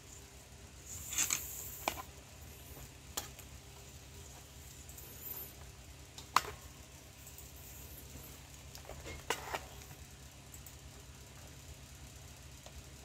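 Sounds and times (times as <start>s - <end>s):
leather lace rubbing and scraping: 0.9s - 2.0s.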